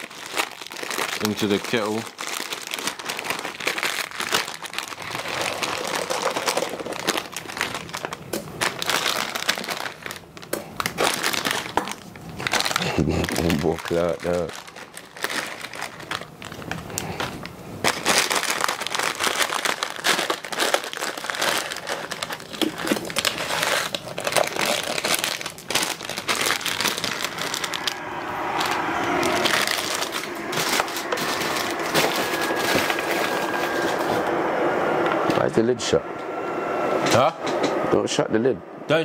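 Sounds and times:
dry noodles crunching in plastic: 0.0 - 34.2
electric kettle heating: 30.2 - 38.0.

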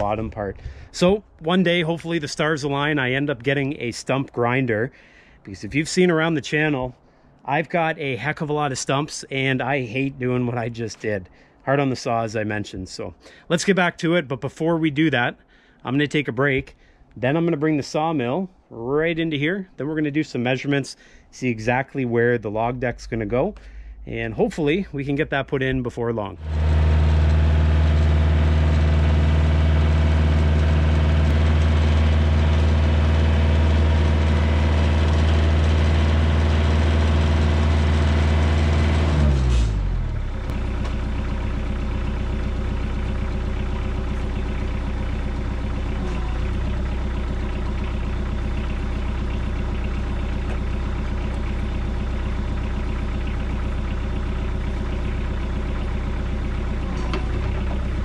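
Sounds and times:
tractor diesel engine running: 0.0 - 6.7, 22.5 - 58.0.

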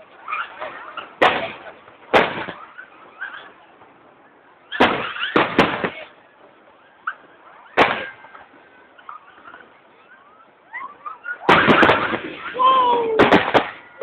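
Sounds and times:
firework shells exploding: 0.4 - 3.5, 4.6 - 6.2, 7.4 - 8.6, 11.4 - 14.0.

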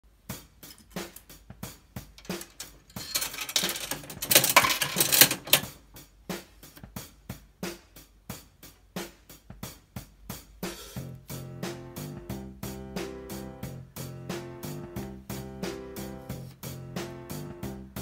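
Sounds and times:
background music with steady beat: 0.1 - 18.0
vending machine dial clicking: 2.2 - 5.7.

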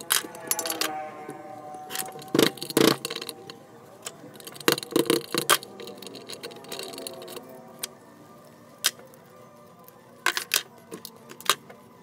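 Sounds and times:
screwdriver and hardware clinking: 0.0 - 0.9, 1.9 - 8.0.

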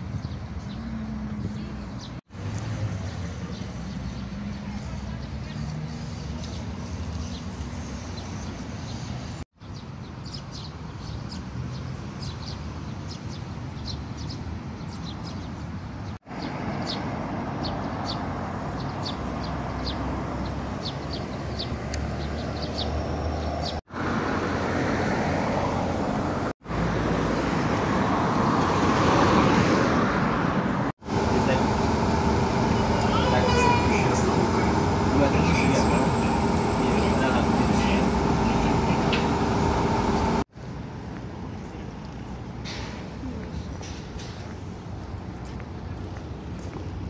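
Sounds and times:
road traffic: 0.0 - 47.0
small birds chirping: 3.1 - 17.0, 17.6 - 23.8, 31.1 - 40.4.

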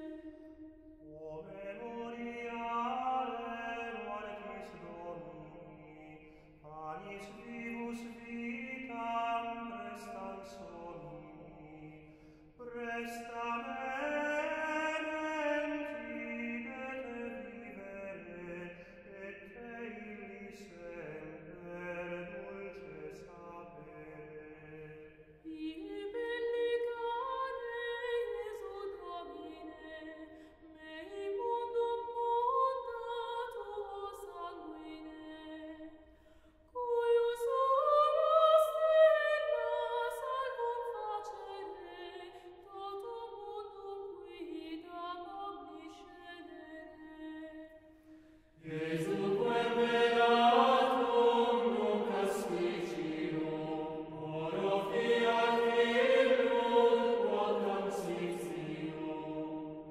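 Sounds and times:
low voices singing: 48.6 - 59.9
unaccompanied chant singing: 48.6 - 59.9.

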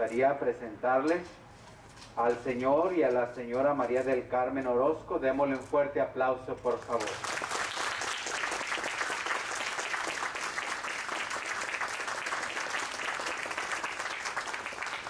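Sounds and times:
people clapping: 6.7 - 15.0.

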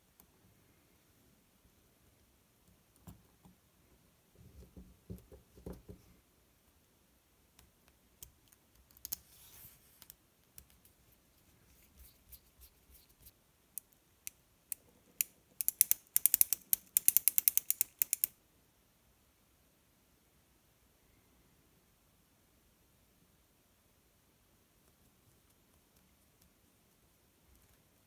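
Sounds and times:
small metal parts clicking and scraping: 15.2 - 18.3.

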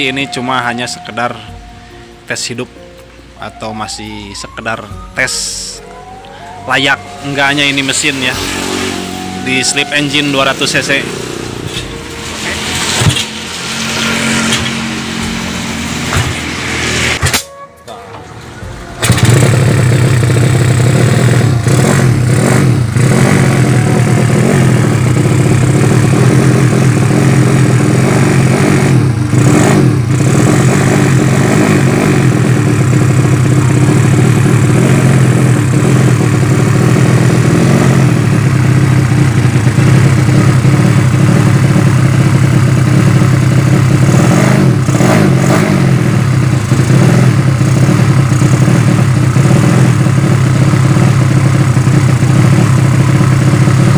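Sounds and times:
motorcycle engine revving at idle: 19.0 - 53.9.

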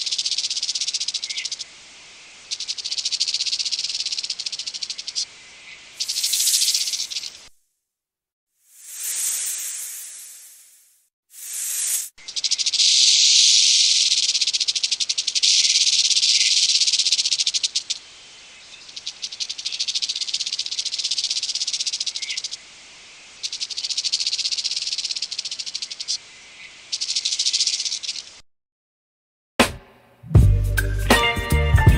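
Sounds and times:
rattlesnake tail rattling: 0.0 - 1.7, 2.3 - 5.2, 5.9 - 7.5, 8.7 - 22.6, 23.3 - 26.2, 26.9 - 28.4.

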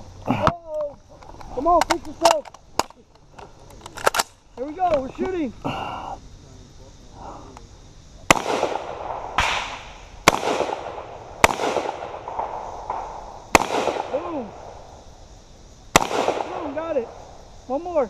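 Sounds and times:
rifle shots with rolling echo: 8.3 - 14.9, 15.9 - 17.4.

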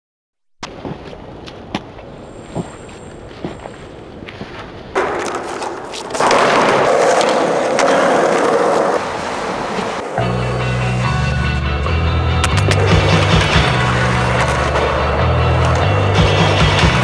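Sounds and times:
skateboard wheels rolling on concrete: 0.6 - 17.0
skateboard clacks: 5.0 - 10.2, 12.4 - 17.0.

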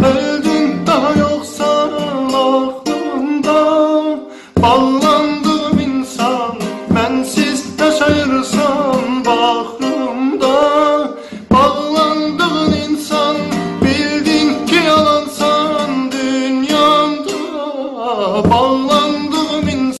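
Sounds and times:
acoustic guitar: 0.0 - 20.0
person singing love song: 0.0 - 20.0.

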